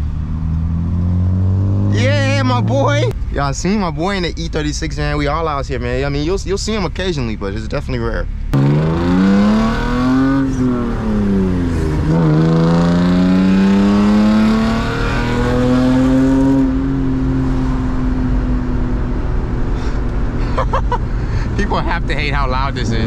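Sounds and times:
car engine revving hard: 0.0 - 3.1, 8.5 - 20.4.

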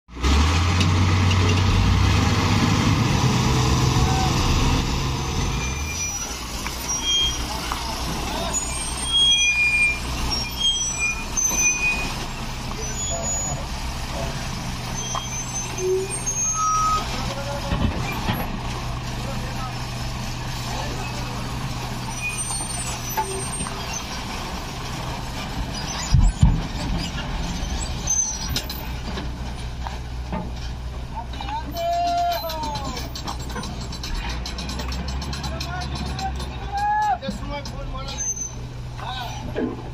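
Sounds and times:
diesel ferry engine drone: 0.1 - 31.8.

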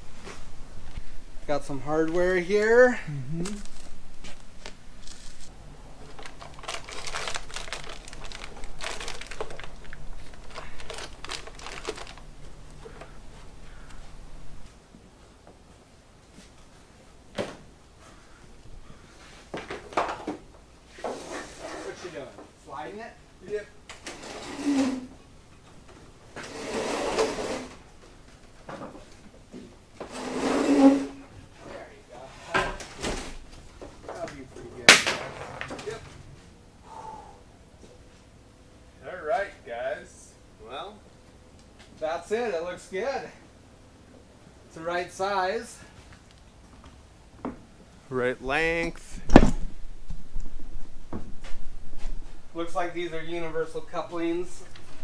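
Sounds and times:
plastic netting rustling: 3.3 - 12.6.

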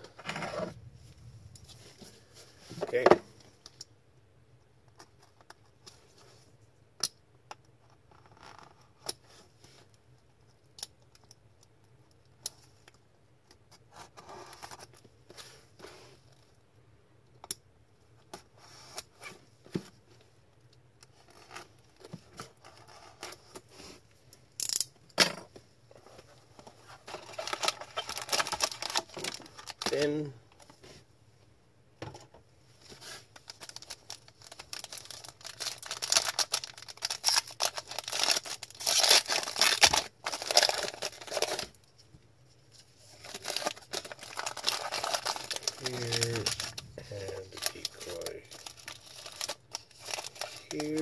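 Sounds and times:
crinkling plastic and cardboard: 21.0 - 24.4, 25.4 - 31.1, 32.7 - 51.0.

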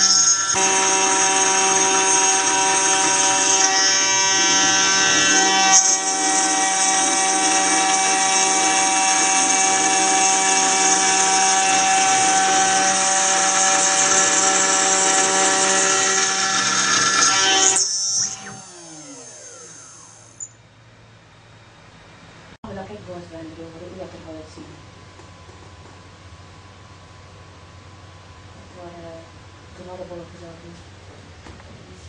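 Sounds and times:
milling spindle high whine: 0.0 - 23.0.

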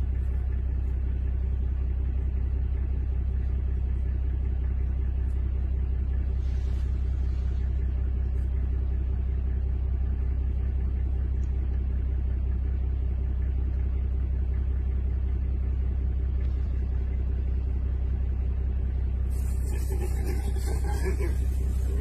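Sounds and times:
vehicle engine idling: 0.0 - 22.0
loud hiss: 19.3 - 22.0.

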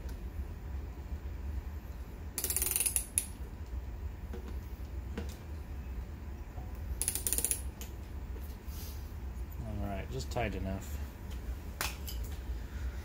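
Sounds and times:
hand ratchet clicking: 2.4 - 3.3, 7.0 - 7.7.

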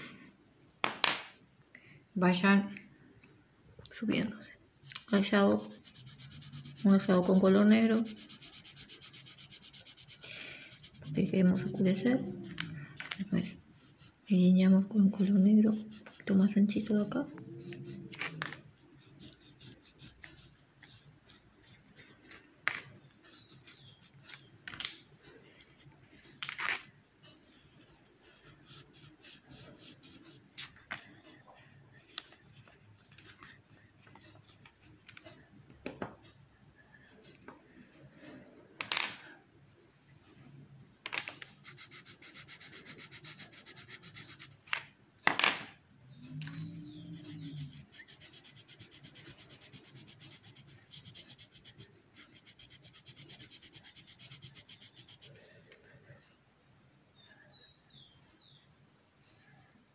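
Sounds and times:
pencil scratching on paper: 4.9 - 12.6, 13.4 - 22.4, 23.0 - 24.3, 27.4 - 35.0, 41.5 - 44.6, 46.8 - 55.4.

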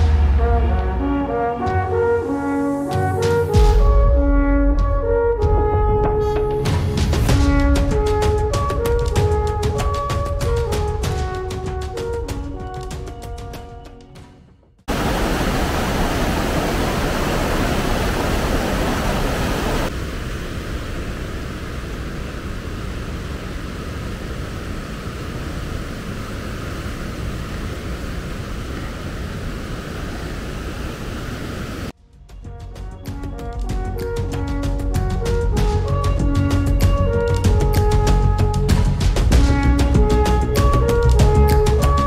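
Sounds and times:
background music: 0.0 - 14.8, 32.0 - 42.0
steady rushing noise: 14.9 - 32.0.

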